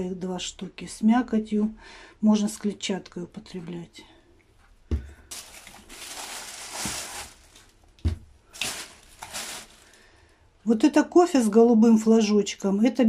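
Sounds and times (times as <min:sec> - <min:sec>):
plastic bag rustling: 0:05.2 - 0:10.3.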